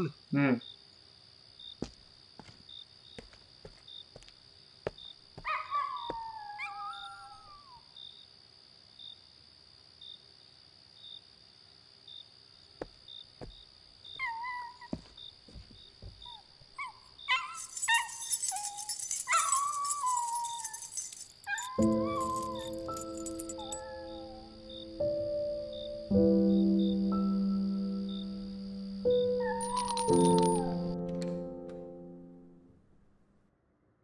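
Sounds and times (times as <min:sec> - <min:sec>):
crickets chirping: 0:00.0 - 0:32.2
dog whining and howling: 0:05.4 - 0:07.8, 0:14.2 - 0:14.9, 0:16.8 - 0:24.7, 0:29.2 - 0:31.0.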